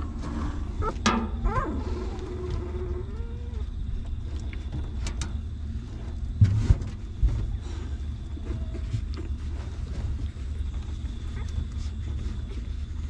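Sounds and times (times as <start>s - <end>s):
low rumble: 0.0s - 13.0s
dog whining: 0.5s - 3.8s
dull thumps: 6.1s - 7.8s.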